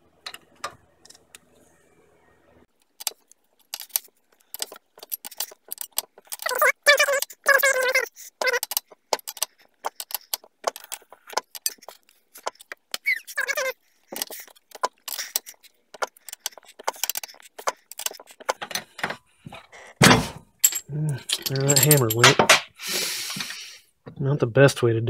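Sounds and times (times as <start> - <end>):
wrench clicking and squeaking: 3.0 - 19.2, 20.6 - 22.3
hammer clattering: 20.0 - 22.7.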